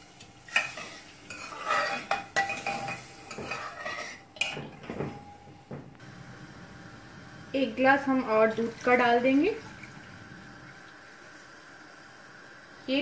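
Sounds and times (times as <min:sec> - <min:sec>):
ladle clinking against pan: 0:00.5 - 0:05.2
ladle scraping saucepan: 0:00.5 - 0:05.2.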